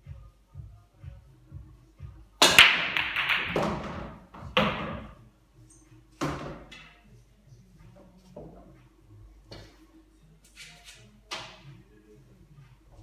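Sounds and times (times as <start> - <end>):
billiard balls clattering: 2.4 - 5.2.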